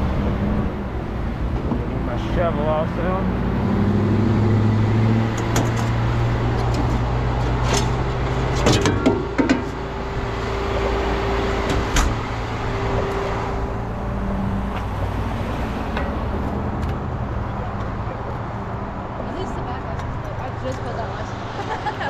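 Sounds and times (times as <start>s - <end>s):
truck engine running: 0.0s - 22.0s
metallic clanks and knocks: 5.3s - 10.0s, 15.8s - 17.0s.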